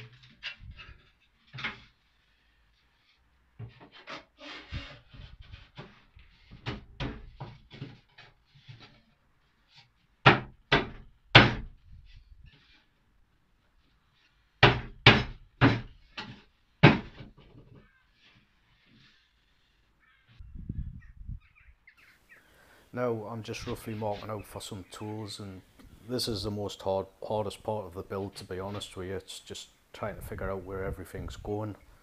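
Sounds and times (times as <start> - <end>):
wood pieces knocking and rubbing: 0.0 - 2.3, 3.0 - 13.0, 13.7 - 19.5
fist striking wood: 10.2 - 11.8, 14.6 - 15.9.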